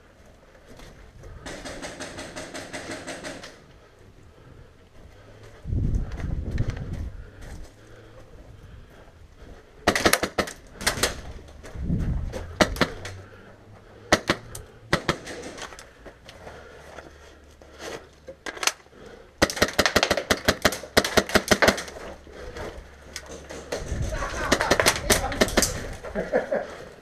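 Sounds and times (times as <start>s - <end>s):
airsoft gunshots: 1.4s - 3.6s, 14.1s - 15.6s.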